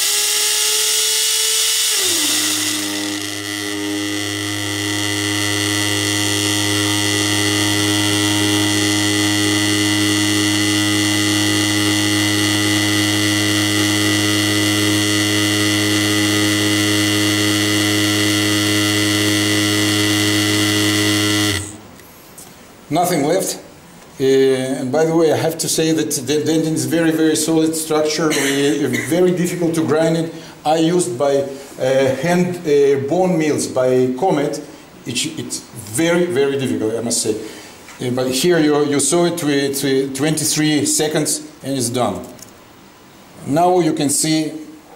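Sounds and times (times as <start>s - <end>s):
high motor whine: 0.0s - 22.0s
machine low buzz: 0.0s - 44.9s.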